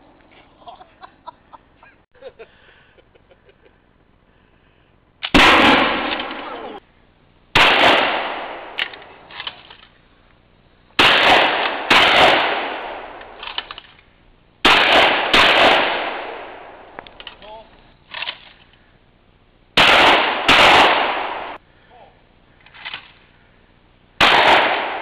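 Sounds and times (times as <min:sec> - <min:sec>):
shotgun shots echoing: 0:05.2 - 0:06.8, 0:07.6 - 0:09.7, 0:11.0 - 0:13.8, 0:14.6 - 0:17.2, 0:19.8 - 0:21.6, 0:24.2 - 0:25.0.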